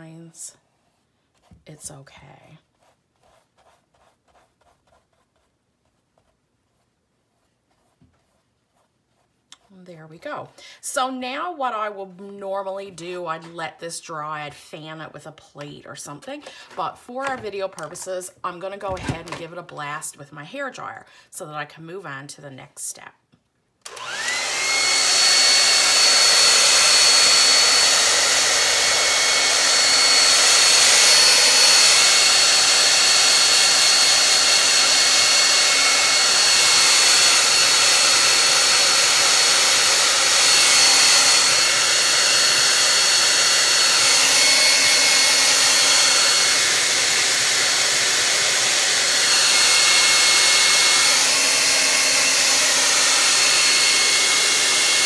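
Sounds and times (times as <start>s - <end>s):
hair dryer blowing: 23.8s - 55.0s.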